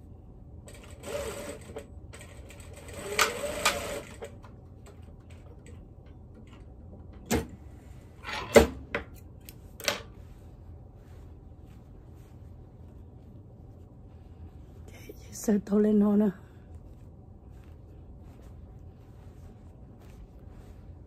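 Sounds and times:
sewing machine stitching: 0:00.7 - 0:04.4.

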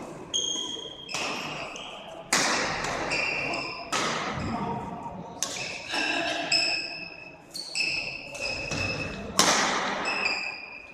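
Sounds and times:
shoes squeaking on court floor: 0:00.3 - 0:02.2, 0:03.0 - 0:03.9, 0:06.5 - 0:09.2, 0:10.0 - 0:10.9
rackets hitting shuttlecock: 0:01.0 - 0:04.5, 0:05.4 - 0:05.9, 0:07.8 - 0:10.6.

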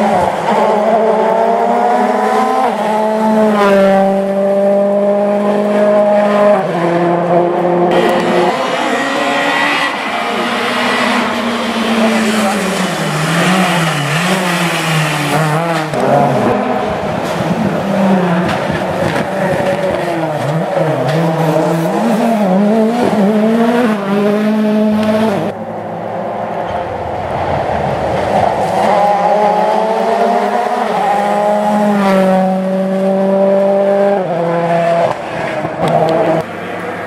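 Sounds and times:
rally car engine revving: 0:00.0 - 0:25.9, 0:26.6 - 0:37.0.

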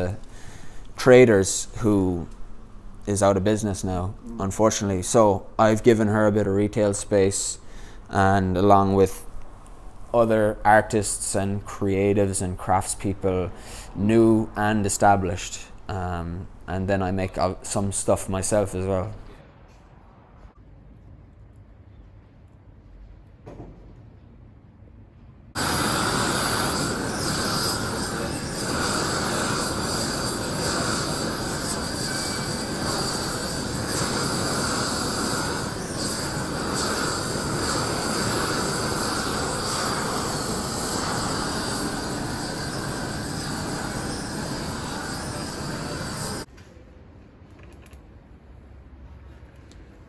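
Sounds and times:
blowtorch flame rushing: 0:00.0 - 0:01.2, 0:25.6 - 0:46.5.

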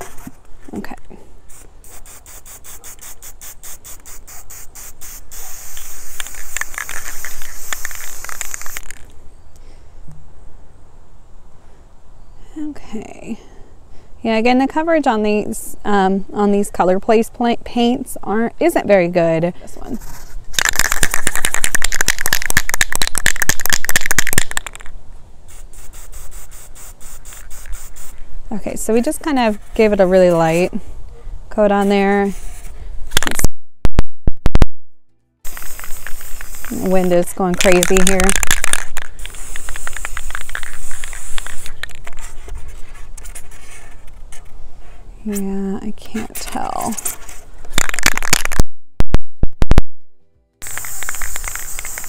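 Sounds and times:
spray can hissing: 0:01.5 - 0:09.0, 0:25.5 - 0:28.2, 0:35.4 - 0:42.3, 0:50.6 - 0:52.0
spray can ball rattling: 0:01.5 - 0:09.1, 0:20.0 - 0:24.9, 0:25.5 - 0:28.2, 0:35.4 - 0:42.3, 0:47.7 - 0:48.6, 0:50.6 - 0:52.0.

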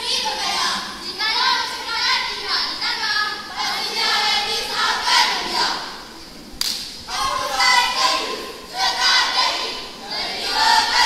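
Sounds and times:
children speaking in unison: 0:00.0 - 0:06.1.

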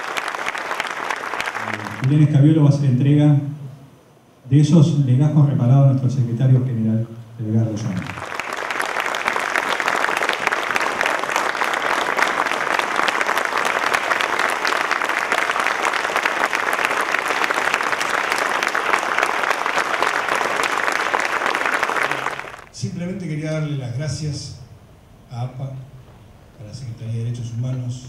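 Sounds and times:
audience applauding: 0:00.0 - 0:02.4, 0:07.9 - 0:22.8.

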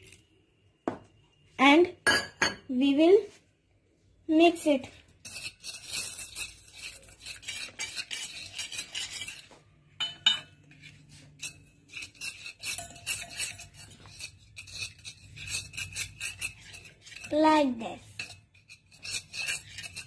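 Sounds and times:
spoon scraping steel bowl: 0:04.8 - 0:20.0.

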